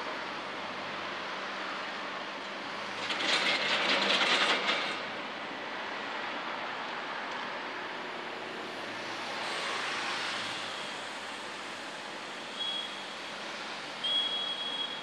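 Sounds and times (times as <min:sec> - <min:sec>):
city traffic: 0:00.0 - 0:15.0
loud rattling clatter: 0:03.0 - 0:05.1.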